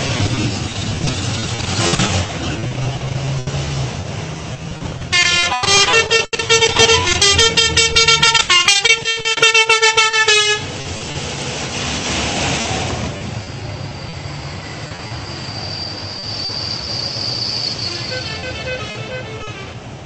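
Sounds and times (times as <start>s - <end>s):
slow car engines running: 0.0s - 20.0s
car horn honking: 5.1s - 10.7s, 17.8s - 19.8s.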